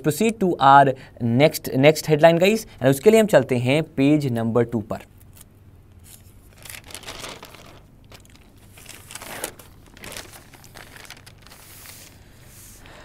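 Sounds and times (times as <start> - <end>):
newspaper pages rustling: 5.4 - 12.8.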